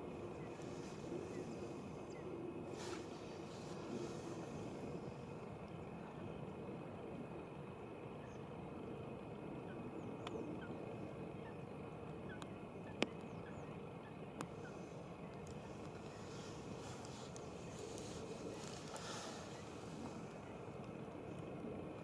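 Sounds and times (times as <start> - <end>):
steady background hiss: 0.0 - 22.0
faint bird chirps: 9.6 - 20.8.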